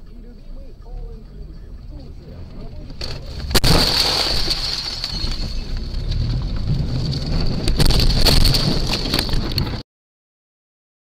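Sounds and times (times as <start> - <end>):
road and engine rumble: 0.0 - 9.8
wind noise: 5.1 - 9.8.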